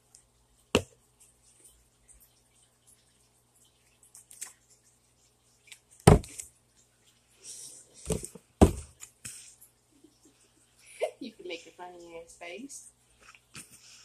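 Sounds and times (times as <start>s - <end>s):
handling knocks and rustles: 8.0s - 9.4s.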